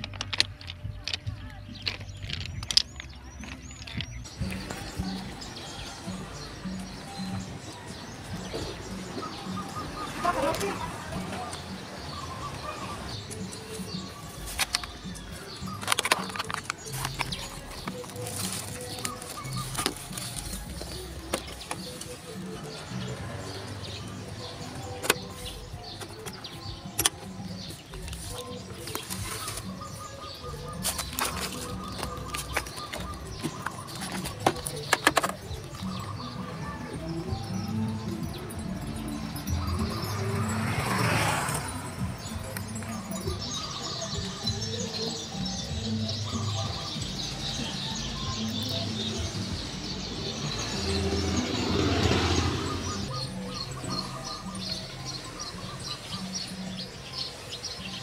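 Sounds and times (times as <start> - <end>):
birds chirping: 0.0 - 58.0
music with held low notes: 0.0 - 58.0.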